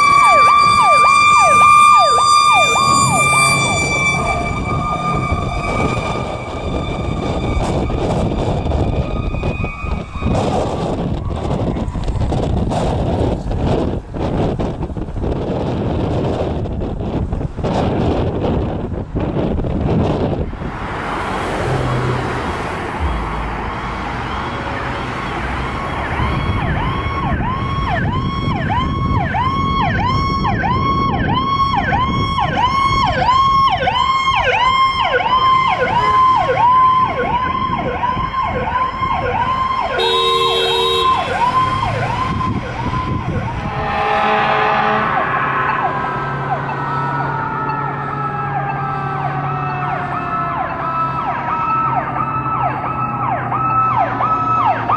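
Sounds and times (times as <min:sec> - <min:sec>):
electronic siren yelping: 0:00.0 - 0:12.4, 0:23.0 - 0:54.9
engine noise: 0:19.9 - 0:28.2, 0:32.6 - 0:54.9
short horn blast: 0:40.0 - 0:41.4, 0:43.5 - 0:47.0.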